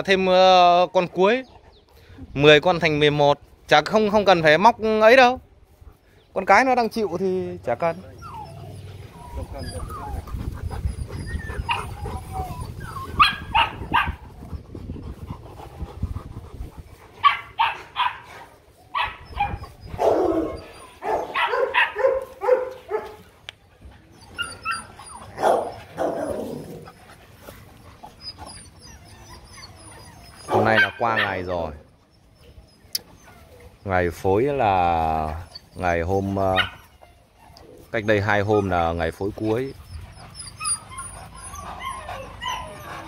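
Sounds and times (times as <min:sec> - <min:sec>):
dogs whimpering: 0:07.1 - 0:43.0
dogs barking: 0:11.1 - 0:12.5, 0:13.1 - 0:14.4, 0:17.2 - 0:23.2, 0:24.6 - 0:26.9, 0:30.4 - 0:31.6, 0:36.5 - 0:37.0.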